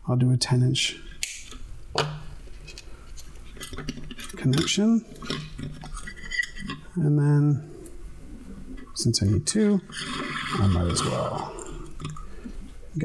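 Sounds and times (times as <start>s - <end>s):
wire and spools clicking and rattling: 2.5s - 7.0s.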